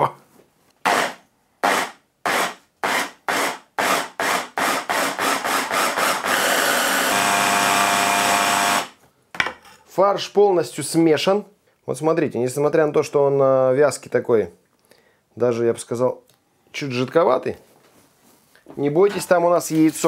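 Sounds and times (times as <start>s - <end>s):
electric blender pulsing and whining: 4.6s - 8.9s.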